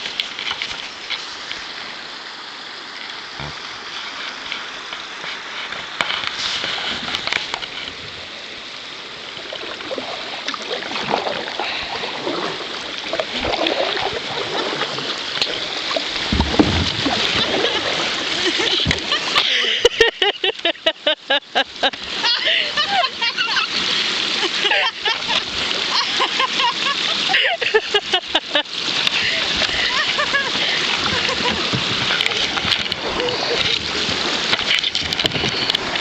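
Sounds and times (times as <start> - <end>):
water trickling and gurgling: 0.0 - 20.0, 21.7 - 36.0
water splashes: 0.0 - 36.0.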